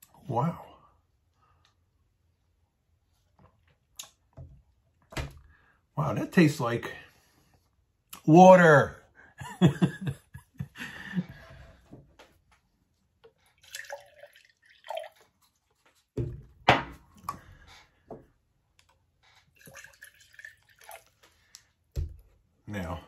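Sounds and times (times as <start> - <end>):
water pouring into glass: 13.6 - 15.4, 19.5 - 21.3.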